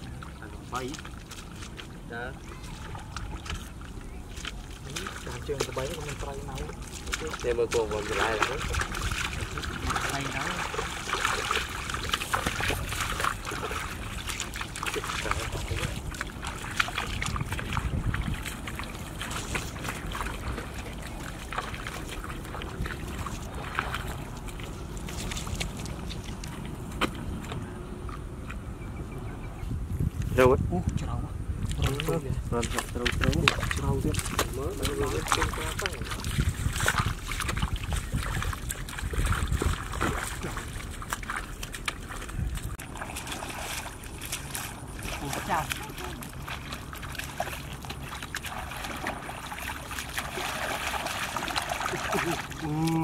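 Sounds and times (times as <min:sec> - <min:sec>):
shallow water splashing: 0:00.0 - 0:28.7, 0:31.6 - 0:53.0
wind on microphone: 0:06.5 - 0:46.5.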